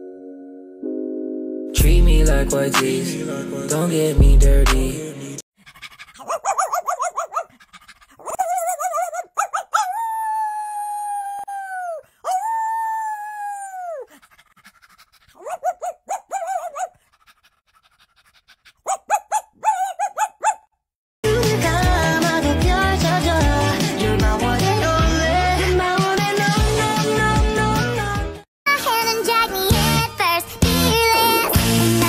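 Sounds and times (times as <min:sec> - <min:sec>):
dog yipping: 0:05.6 - 0:10.4, 0:13.8 - 0:20.7
dog howling: 0:06.2 - 0:07.5, 0:08.2 - 0:14.1, 0:15.4 - 0:17.0, 0:18.9 - 0:20.6.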